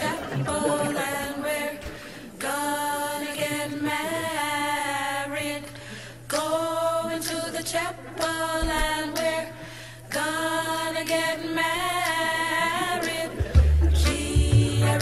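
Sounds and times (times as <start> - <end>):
voices singing long notes: 0.0 - 5.6, 10.1 - 15.0.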